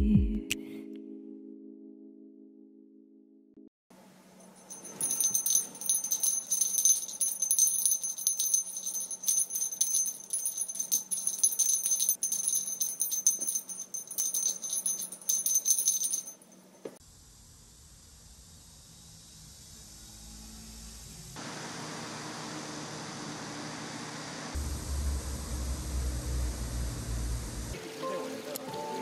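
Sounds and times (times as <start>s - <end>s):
small bell jingling: 4.4s - 16.6s.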